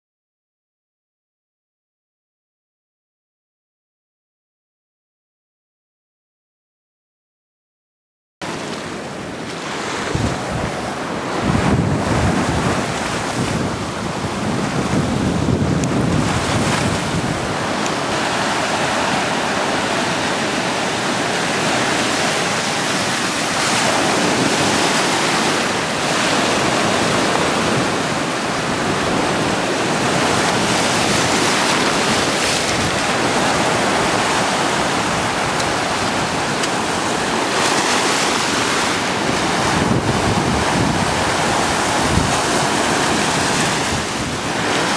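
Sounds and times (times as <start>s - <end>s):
surf breaking on rocks: 8.4s - 44.9s
wind buffeting microphone: 9.2s - 44.9s.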